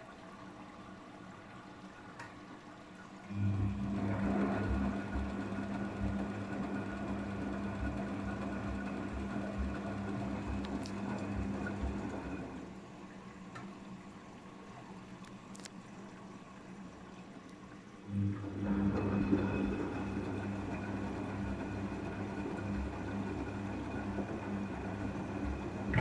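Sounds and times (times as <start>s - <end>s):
washing machine motor hum: 0.0s - 26.0s
water sloshing in drum: 7.7s - 13.4s, 25.4s - 26.0s.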